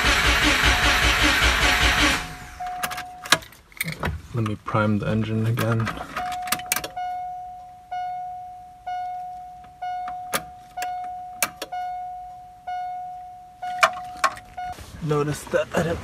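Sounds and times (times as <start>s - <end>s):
dashboard warning chime dinging: 2.5s - 3.6s, 5.6s - 15.4s
ignition key and switch clicks: 5.6s - 7.0s, 10.0s - 11.8s.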